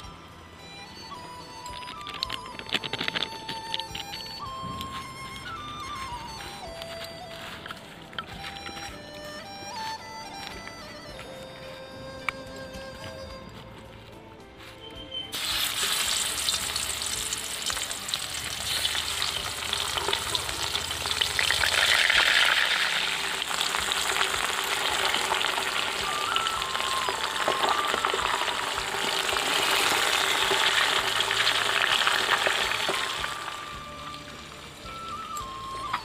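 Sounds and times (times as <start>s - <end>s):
fish sizzling in hot oil: 15.3s - 35.0s.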